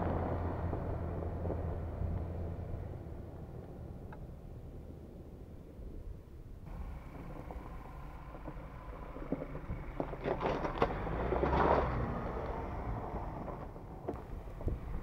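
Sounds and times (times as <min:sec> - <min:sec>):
pickup engine rumble: 0:00.0 - 0:15.0
tyres crackling over gravel: 0:06.7 - 0:15.0.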